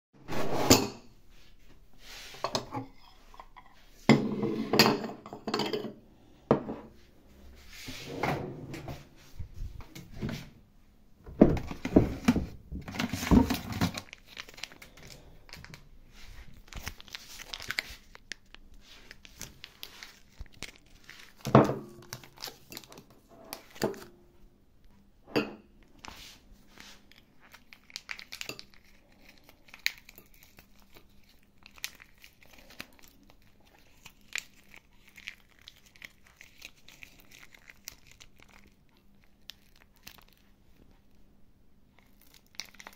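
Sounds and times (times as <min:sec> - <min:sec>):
foil pouch crinkling: 0:12.9 - 0:23.9, 0:26.8 - 0:40.9, 0:42.0 - 0:42.9.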